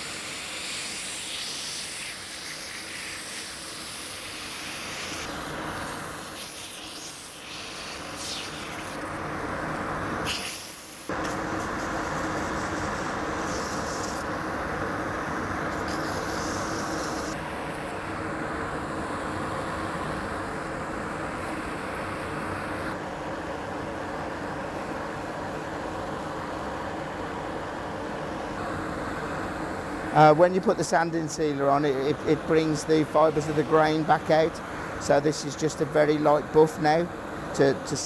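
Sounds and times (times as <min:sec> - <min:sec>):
sanding hiss on wood: 0:00.0 - 0:09.0, 0:10.2 - 0:14.2, 0:15.7 - 0:17.4.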